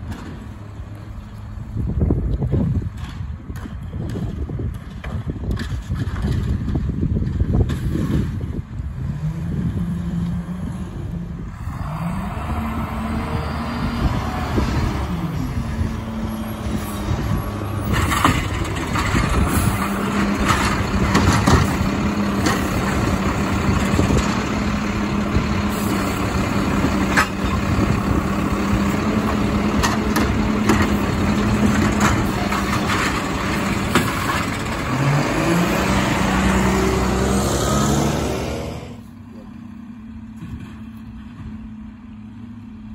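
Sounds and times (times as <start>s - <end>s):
cart knocking and clattering: 2.6s - 8.5s, 17.1s - 25.4s, 26.0s - 35.3s
garbage truck diesel engine revving: 8.8s - 41.3s.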